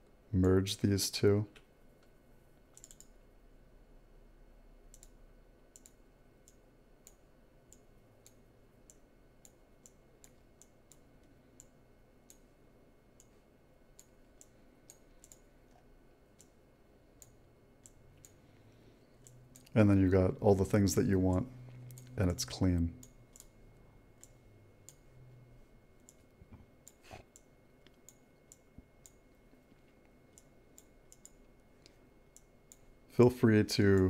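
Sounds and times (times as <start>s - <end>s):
faint computer mouse clicks: 1.5s - 3.2s, 4.9s - 11.7s, 14.0s - 15.8s.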